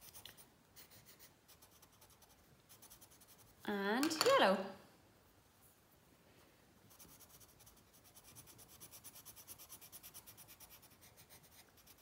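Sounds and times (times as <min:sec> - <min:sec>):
pencil scratching on paper: 0:00.8 - 0:03.6, 0:06.9 - 0:12.0.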